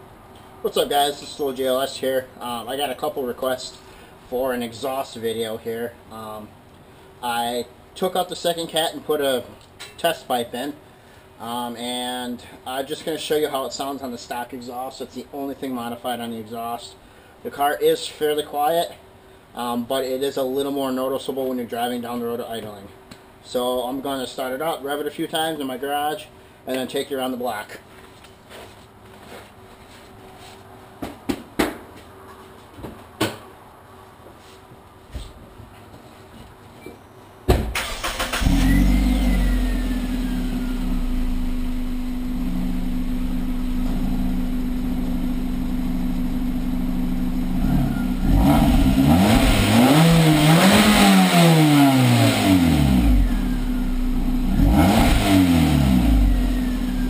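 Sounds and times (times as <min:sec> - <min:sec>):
car engine idling and revving: 0:38.4 - 0:57.0.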